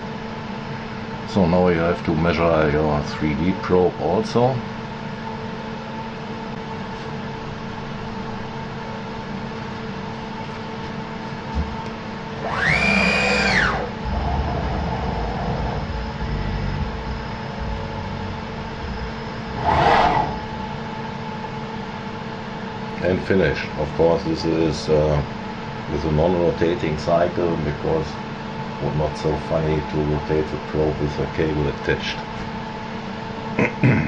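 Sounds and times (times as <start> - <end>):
steady machine hum: 0.0 - 34.0
machine traverse whine: 11.3 - 32.6
motor noise burst: 12.4 - 21.2.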